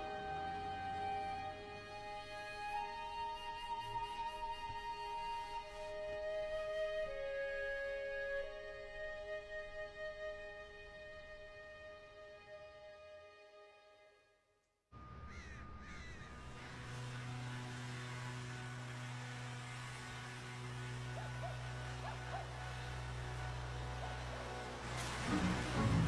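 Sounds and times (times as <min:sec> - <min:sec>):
motor humming low: 0:00.0 - 0:03.4, 0:15.0 - 0:26.0
music: 0:00.0 - 0:26.0
short bird calls: 0:15.2 - 0:16.6.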